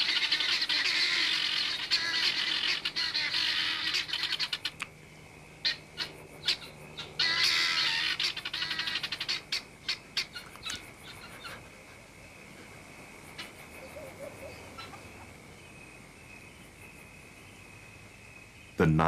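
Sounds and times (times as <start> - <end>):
guineafowl alarm cackling: 0.0 - 4.9, 5.6 - 17.0
high insect trill: 0.0 - 19.0.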